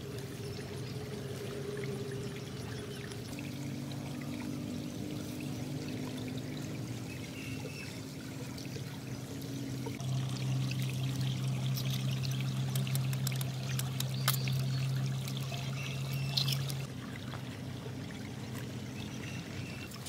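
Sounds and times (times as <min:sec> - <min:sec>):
water trickling and pouring: 0:00.0 - 0:20.0.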